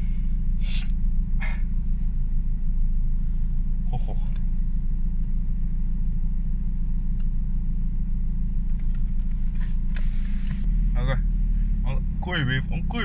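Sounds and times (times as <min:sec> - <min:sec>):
car engine running: 0:00.0 - 0:13.0
brief hiss: 0:00.6 - 0:00.9.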